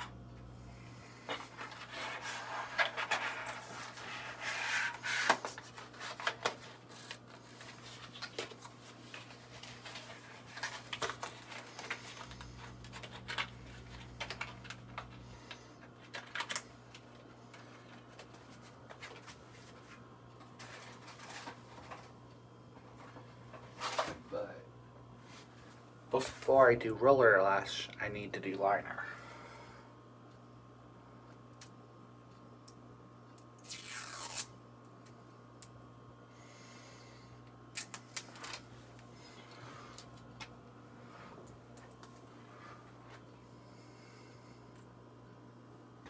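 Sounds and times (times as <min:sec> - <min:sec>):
steady low hum: 0:00.0 - 0:46.0
packaging rustling: 0:01.3 - 0:15.2.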